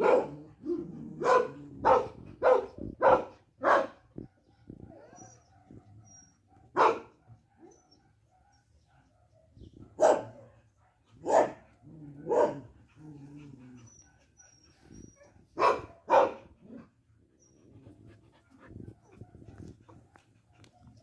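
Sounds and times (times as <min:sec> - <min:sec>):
dog barking: 0:00.0 - 0:04.0, 0:06.6 - 0:12.7, 0:15.6 - 0:16.5.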